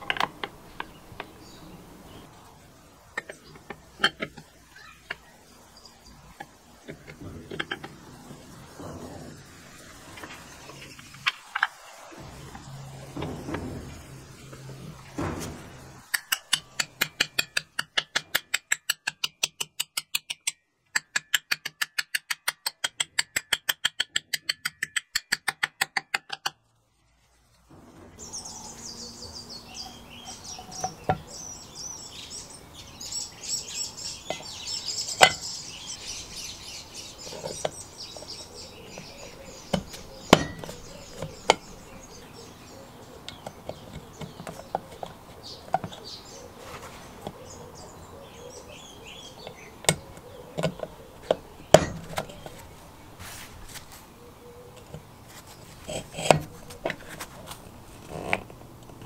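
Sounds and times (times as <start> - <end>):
birds chirping: 0.0 - 18.2, 27.7 - 59.0
sharp metal clicks: 15.1 - 26.6.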